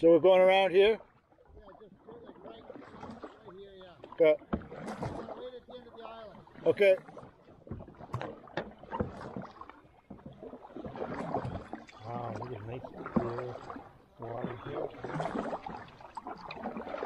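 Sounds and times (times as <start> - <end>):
paddle strokes in water: 0.0 - 17.0
sharp knocks on canoe: 4.0 - 5.4, 6.8 - 12.0.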